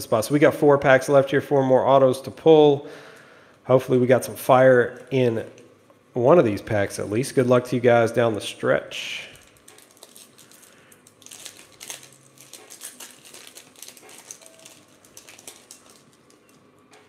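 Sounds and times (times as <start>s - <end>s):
wrapper tearing: 9.2s - 16.6s
foil wrapper crinkling: 9.2s - 16.7s.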